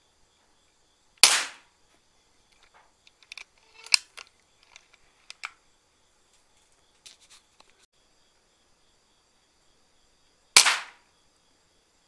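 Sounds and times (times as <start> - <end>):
air rifle shot crack: 1.2 - 1.6, 10.6 - 11.0.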